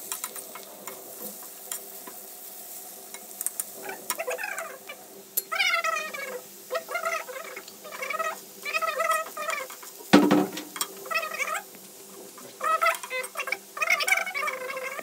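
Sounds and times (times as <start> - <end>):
spatula clanking on pan: 9.2 - 11.0.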